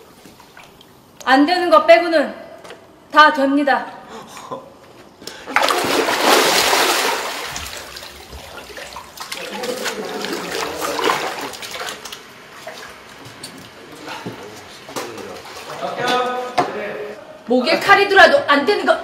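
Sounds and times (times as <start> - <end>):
water splashing in bathtub: 0.0 - 1.3, 5.5 - 16.0.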